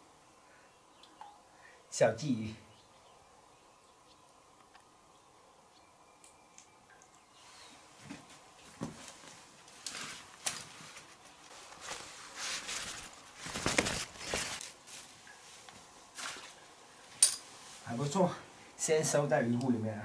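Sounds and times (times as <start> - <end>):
fabric net rustling and scraping: 8.3 - 18.0.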